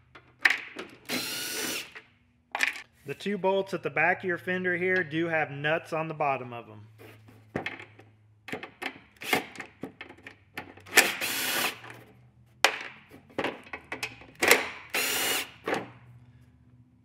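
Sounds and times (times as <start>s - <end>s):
clicks and knocks of tool handling: 11.8s - 14.8s.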